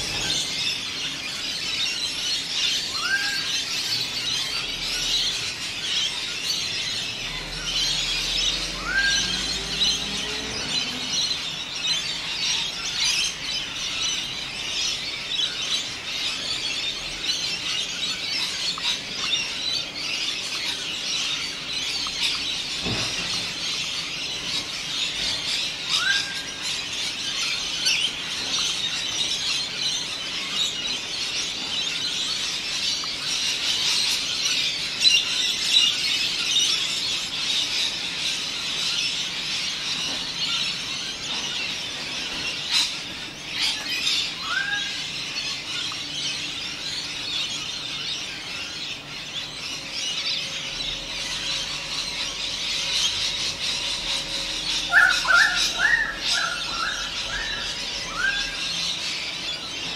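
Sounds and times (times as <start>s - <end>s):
high-pitched bird chatter: 0.0s - 59.9s
rising whistles: 7.4s - 11.1s.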